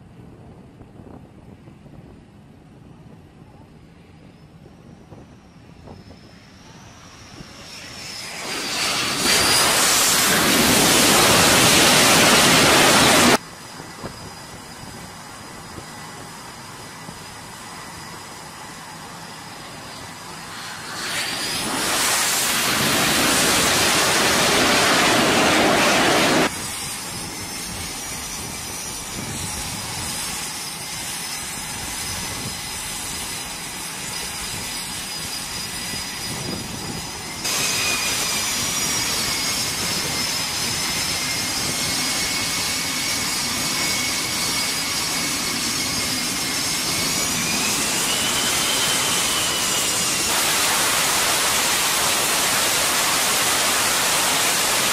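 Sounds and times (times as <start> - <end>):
high whine of jets idling: 0.0 - 54.9
loud jet noise of landing jet: 4.1 - 54.9.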